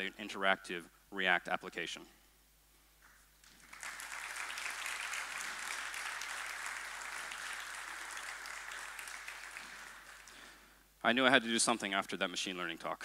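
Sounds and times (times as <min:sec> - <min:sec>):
audience applauding: 0:03.4 - 0:10.6.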